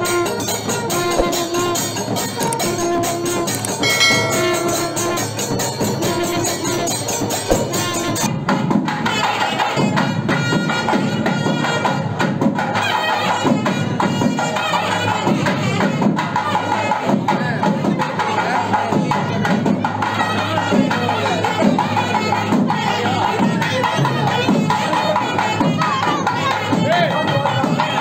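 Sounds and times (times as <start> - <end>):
fast even percussion: 0.0 - 9.3.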